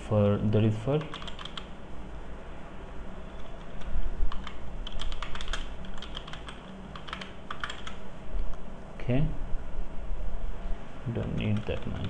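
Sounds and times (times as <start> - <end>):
computer keyboard typing: 1.0 - 1.7, 3.4 - 8.0, 11.3 - 12.0.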